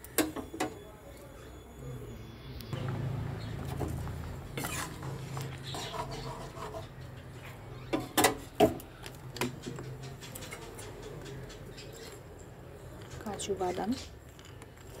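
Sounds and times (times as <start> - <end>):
kitchenware clinking and knocking: 7.9 - 8.8.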